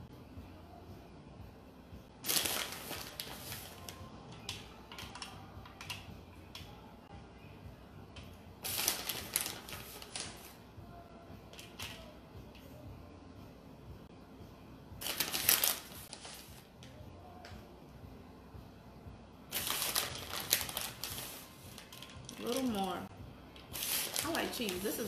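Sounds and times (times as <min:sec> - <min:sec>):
plastic bag crinkling: 0:19.5 - 0:23.0, 0:23.8 - 0:25.0.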